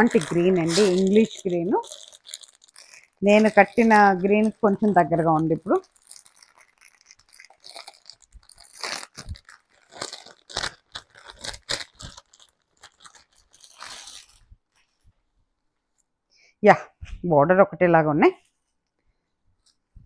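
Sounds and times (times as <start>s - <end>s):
plastic packaging crinkling: 0.0s - 15.2s.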